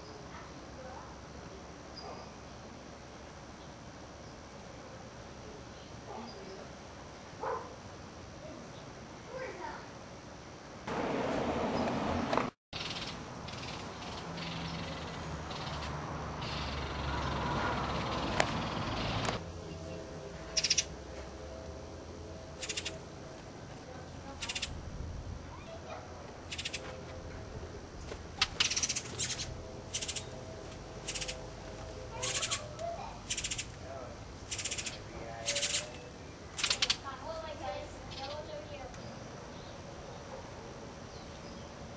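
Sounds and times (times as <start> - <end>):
nestlings begging calls: 12.8 - 19.4, 20.5 - 20.9, 22.6 - 23.0, 24.4 - 24.8, 26.5 - 26.8, 28.4 - 30.4, 31.0 - 31.5, 32.1 - 33.8, 34.4 - 37.1.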